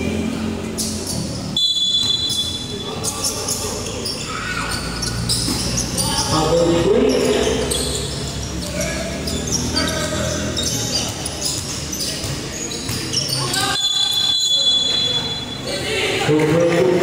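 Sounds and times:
people talking and calling out: 0.0 - 17.0
basketball bouncing on hard court: 11.0 - 13.2.

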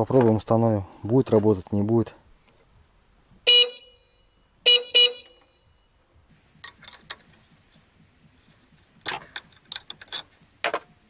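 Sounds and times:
car horn short beeps: 3.5 - 5.9
light clicks and rattles of hands: 6.6 - 10.9.

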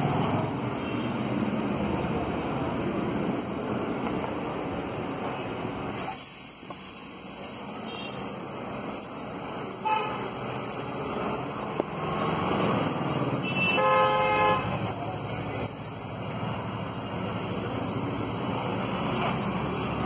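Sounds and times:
noisy street background: 0.0 - 20.0
vehicle horns honking: 7.8 - 8.4, 9.7 - 10.4, 13.4 - 14.9.

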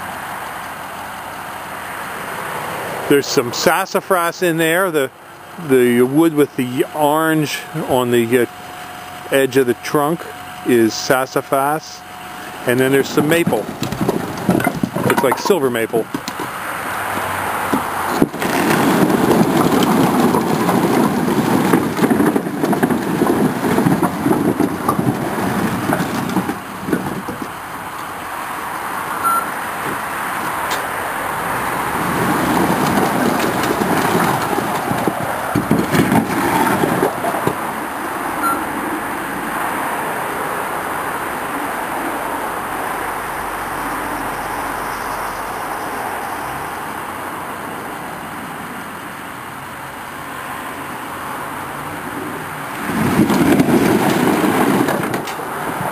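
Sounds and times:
truck engine running: 3.1 - 39.6
logs clattering onto a pile: 13.0 - 28.1, 32.0 - 37.8, 52.8 - 55.4.

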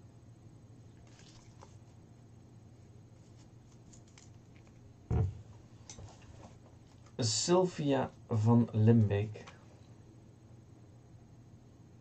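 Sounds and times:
paper crinkling and clicks: 3.2 - 4.8
dull thump: 5.1 - 5.5.

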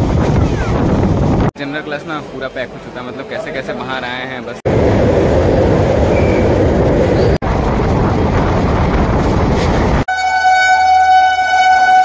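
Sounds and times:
moving train rattling: 4.7 - 10.2
locomotive horn: 10.1 - 12.0.

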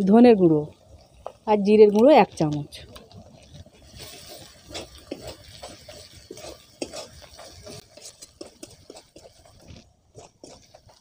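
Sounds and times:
oil sizzling: 0.0 - 11.0
metal spatula scraping a pan: 2.9 - 11.0.

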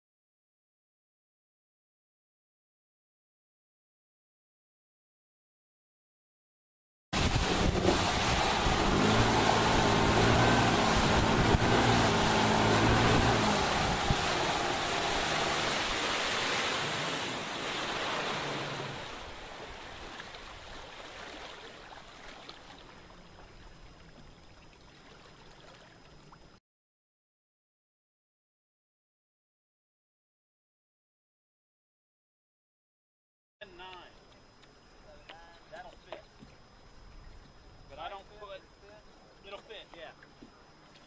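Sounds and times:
outboard motor running: 7.2 - 20.7
water rushing off hull: 7.2 - 26.6.

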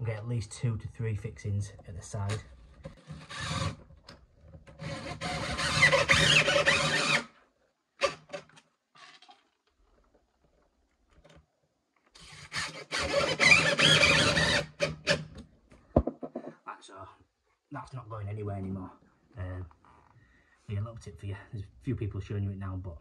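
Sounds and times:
cordless drill driving screws: 3.0 - 3.8, 4.7 - 7.3, 12.2 - 15.4.

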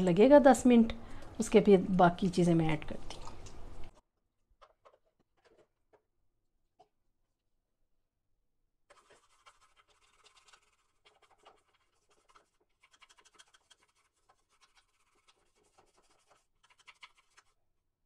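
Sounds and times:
toothbrush scrubbing plastic: 4.6 - 6.0, 8.9 - 17.6.

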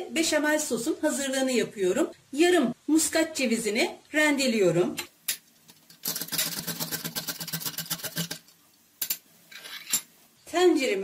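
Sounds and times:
nutmeg scraping on metal grater: 6.0 - 8.4.

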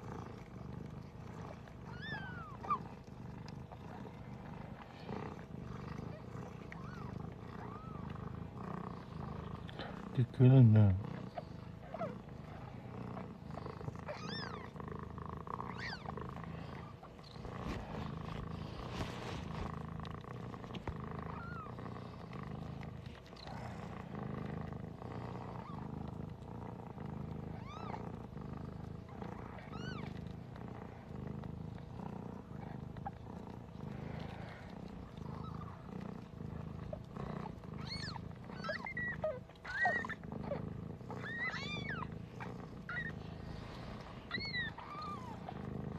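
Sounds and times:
cat purring: 0.0 - 45.9
kittens squeaking: 14.1 - 14.7, 15.7 - 16.2, 29.7 - 30.1, 37.8 - 40.6, 41.2 - 42.1, 42.9 - 43.2, 44.3 - 45.4.

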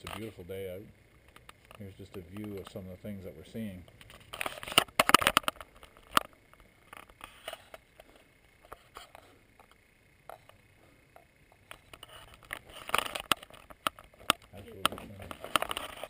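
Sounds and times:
camera handling clicks and rustles: 0.0 - 0.3, 3.8 - 7.9, 11.6 - 16.0.

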